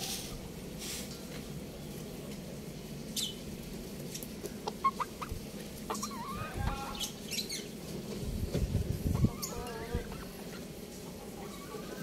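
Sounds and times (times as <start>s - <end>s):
chickens clucking: 4.0s - 12.0s.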